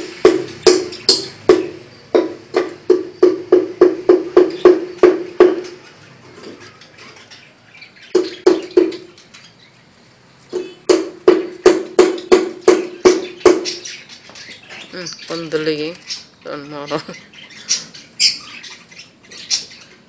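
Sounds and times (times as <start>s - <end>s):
pitched drum hits: 0.0s - 5.6s.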